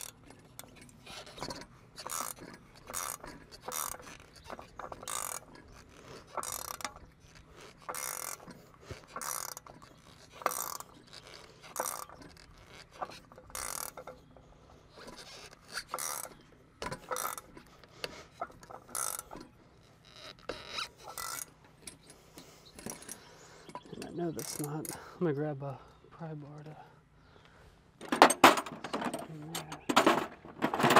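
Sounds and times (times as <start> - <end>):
ratchet wrench clicking: 0.0 - 14.1, 15.2 - 16.3.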